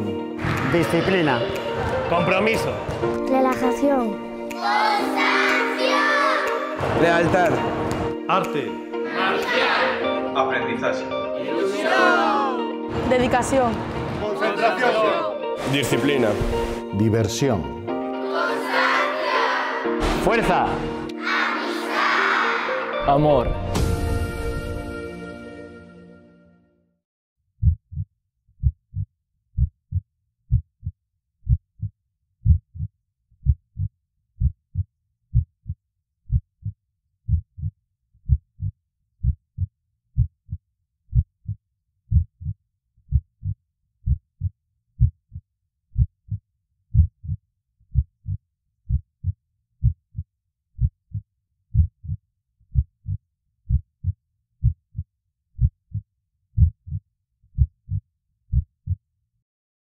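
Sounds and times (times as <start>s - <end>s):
heartbeat thumps: 27.6s - 36.7s, 46.0s - 49.0s, 50.8s - 54.8s.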